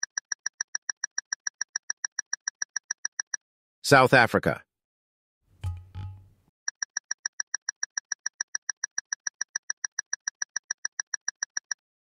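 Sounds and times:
clock-like ticking: 0.0s - 3.4s, 5.7s - 11.8s.

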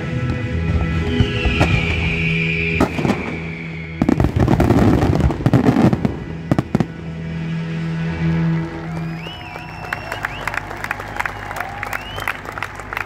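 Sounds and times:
fireworks bangs and crackling: 0.0s - 8.0s
music playing: 0.0s - 13.0s.

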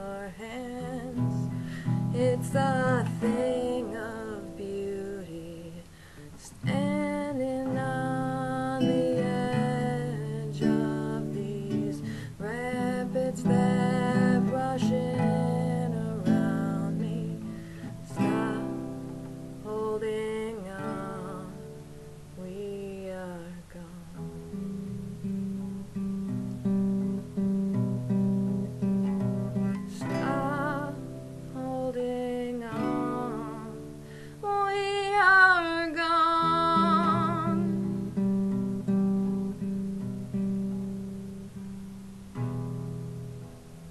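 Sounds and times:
woman singing: 0.0s - 25.0s, 29.5s - 39.8s
classical guitar playing: 0.0s - 43.9s.

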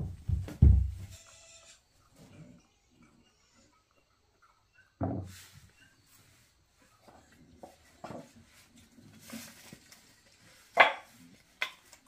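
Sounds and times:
faint scuffs and knocks: 0.0s - 1.2s.

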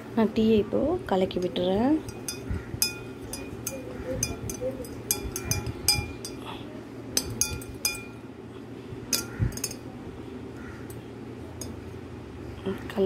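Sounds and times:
spoon clinking in glass: 2.0s - 6.4s, 7.2s - 8.2s, 9.1s - 9.8s.

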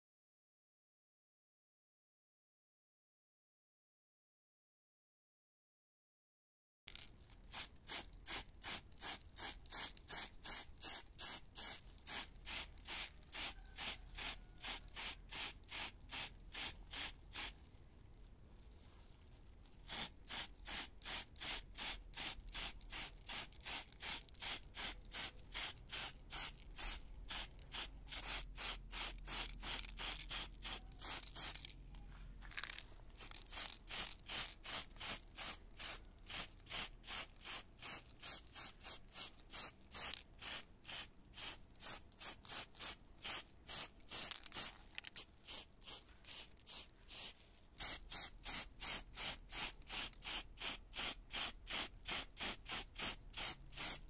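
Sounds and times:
hands rubbing back and forth: 22.7s - 40.4s, 41.8s - 48.4s.

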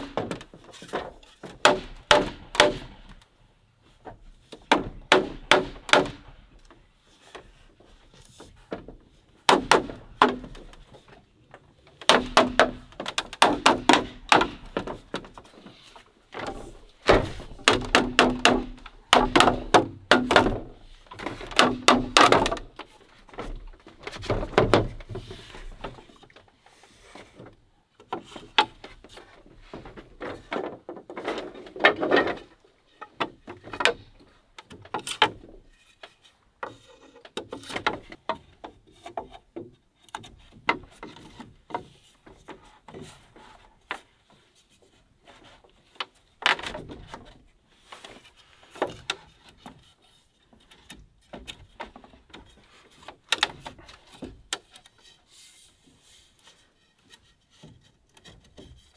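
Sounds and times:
tool knocking on bamboo: 1.4s - 2.9s, 4.7s - 6.2s, 9.5s - 10.6s, 12.0s - 15.0s, 16.4s - 22.7s.

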